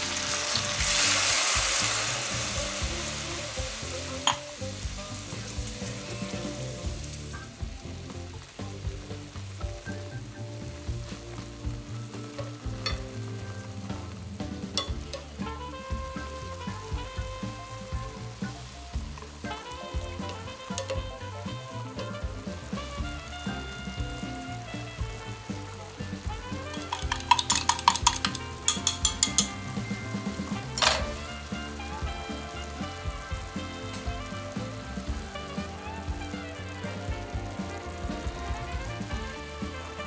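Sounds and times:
pan sizzling and simmering: 0.0 - 40.0
soft background music: 0.0 - 40.0
chopsticks tapping a pan: 4.1 - 7.9, 12.1 - 22.2, 25.9 - 32.6.

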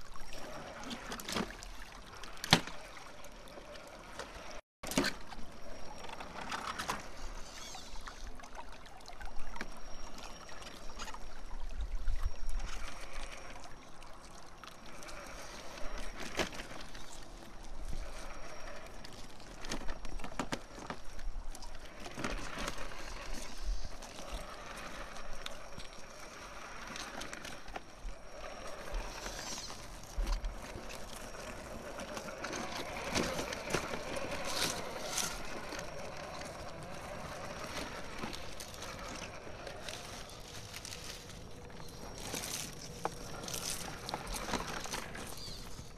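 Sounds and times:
stream trickling: 0.0 - 45.9
toy truck motor whine: 14.8 - 21.0, 21.8 - 45.9.

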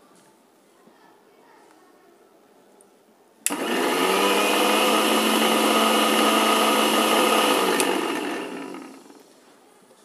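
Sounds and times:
mixer grinder running: 3.5 - 9.3.

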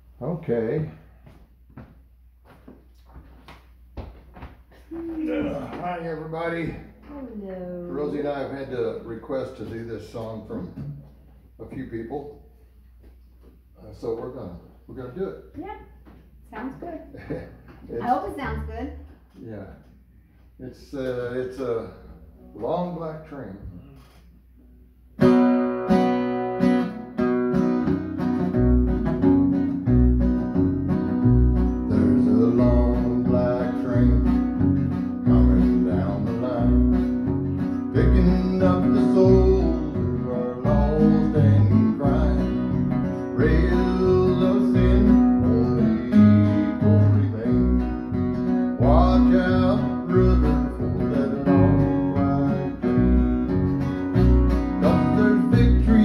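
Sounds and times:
man singing: 5.1 - 5.8, 31.8 - 37.2, 37.8 - 48.0, 48.7 - 53.2, 54.7 - 56.0
acoustic guitar strumming: 18.0 - 19.3, 25.2 - 56.0
plucked upright bass: 27.6 - 56.0.

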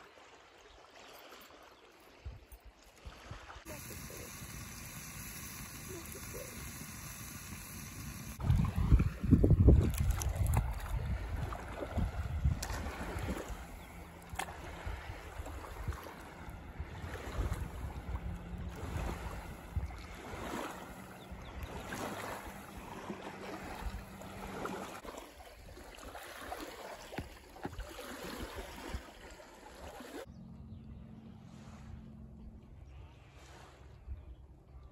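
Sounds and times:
water splashing and lapping: 0.0 - 30.3, 31.3 - 32.4, 33.0 - 34.1
wind rumbling on microphone: 7.6 - 24.9.

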